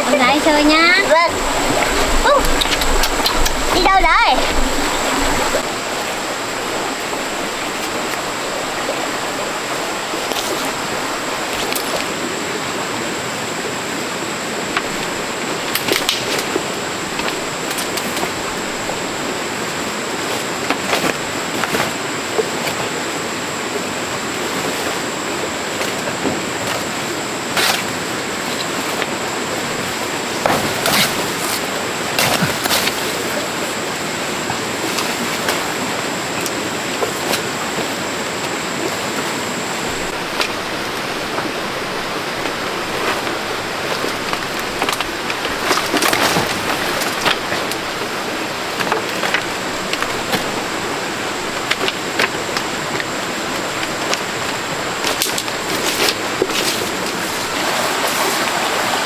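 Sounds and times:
flowing water rushing: 0.0s - 59.0s.

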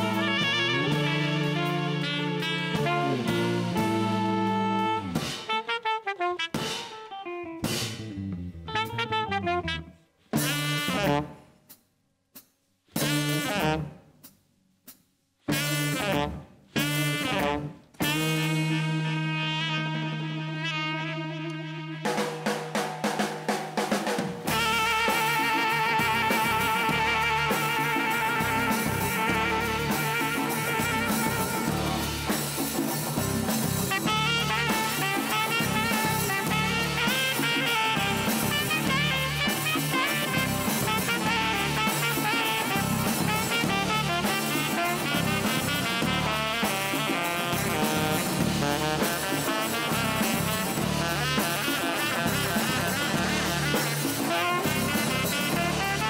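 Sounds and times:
electric bass: 0.0s - 5.5s, 7.4s - 9.9s, 24.5s - 46.7s, 47.3s - 56.0s
saxophone: 0.0s - 7.9s, 8.6s - 11.4s, 13.0s - 14.0s, 15.5s - 22.8s, 24.4s - 56.0s
drum kit: 0.0s - 56.0s.

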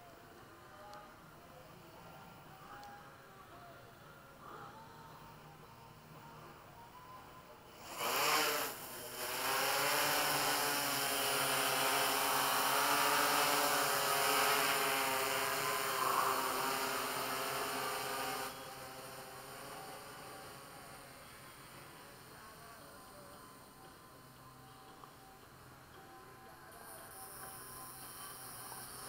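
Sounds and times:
drone rotors whining: 7.7s - 25.2s.

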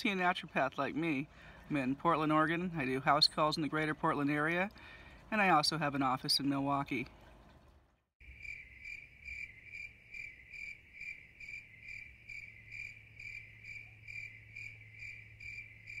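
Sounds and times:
cricket chirping: 8.2s - 16.0s.

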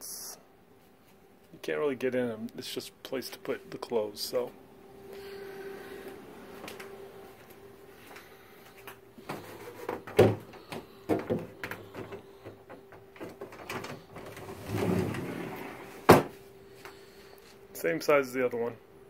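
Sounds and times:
door scraping rumble: 13.6s - 16.3s.

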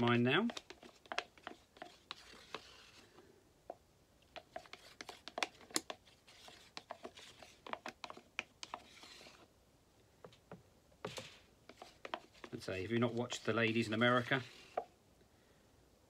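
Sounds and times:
stick scraping plastic cup: 0.0s - 3.3s, 4.3s - 9.5s, 11.0s - 14.9s.

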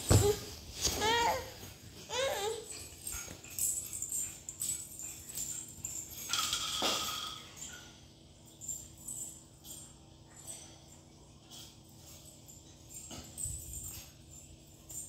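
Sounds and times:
toys clicking and rattling: 0.1s - 10.7s.

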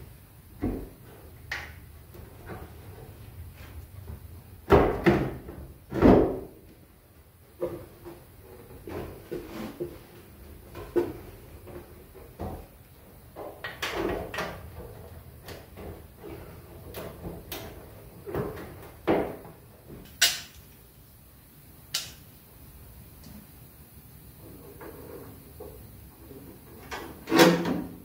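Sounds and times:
objects knocking and clunking: 0.5s - 20.6s.

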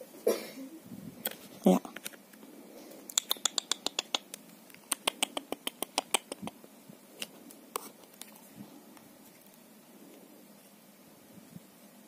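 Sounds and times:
pen clicking against turtle shell: 3.1s - 6.6s.

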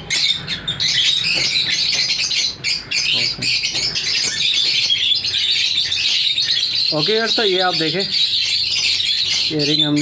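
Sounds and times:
lovebirds chirping and chattering: 0.0s - 10.0s.

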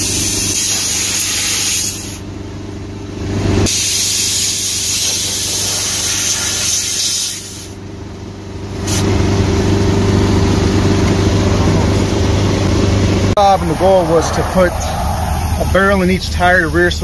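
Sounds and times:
pressurized spraying hiss: 3.7s - 7.8s.

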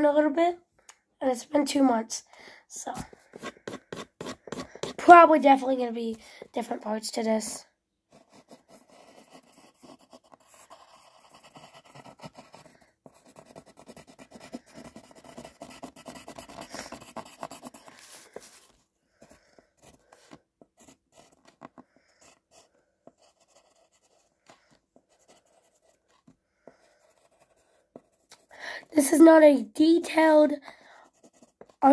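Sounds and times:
pencil scratching on paper: 2.9s - 5.2s, 8.1s - 29.2s, 30.2s - 31.9s.

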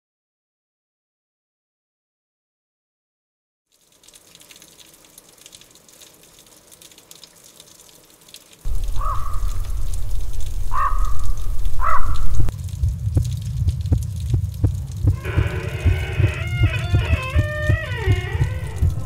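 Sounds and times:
faint crackle: 3.7s - 19.0s
crow cawing: 8.7s - 10.0s, 10.7s - 12.5s
deep low rumble: 8.7s - 19.0s.

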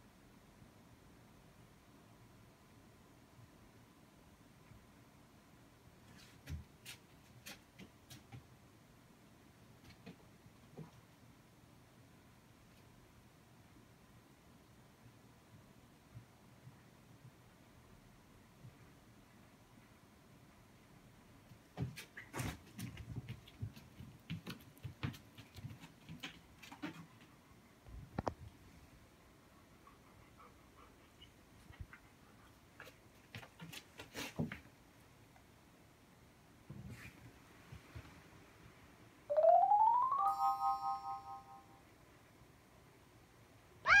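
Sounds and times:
dog paws tapping on carpet: 6.2s - 8.6s, 21.4s - 27.4s
chime chord: 39.3s - 41.8s
high pitch-bending sound: 39.3s - 41.8s.

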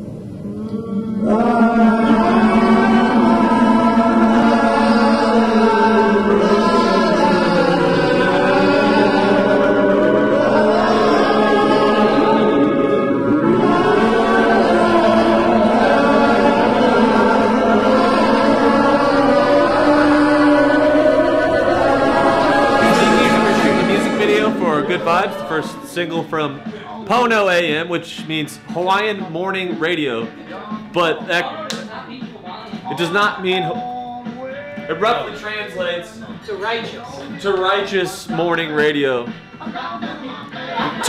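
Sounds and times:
voices singing in harmony: 0.0s - 41.0s.

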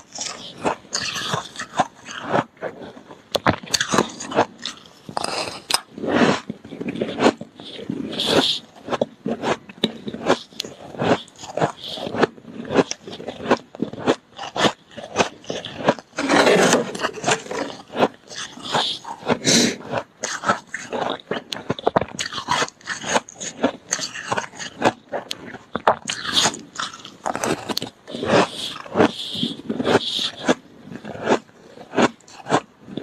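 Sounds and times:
frost crunching as chewed: 0.0s - 33.0s
metal spoon scraping plastic tub: 15.7s - 19.9s.

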